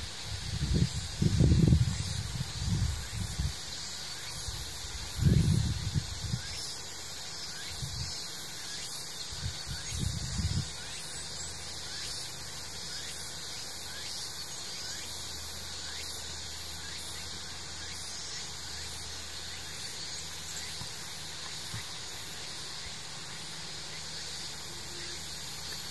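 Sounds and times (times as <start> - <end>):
cicadas droning: 0.0 - 25.9.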